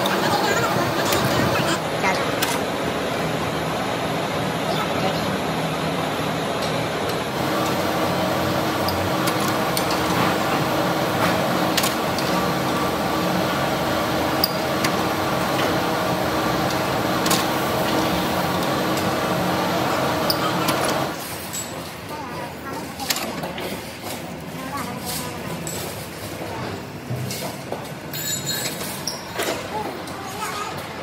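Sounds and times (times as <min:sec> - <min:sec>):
factory machinery humming: 0:00.0 - 0:22.9.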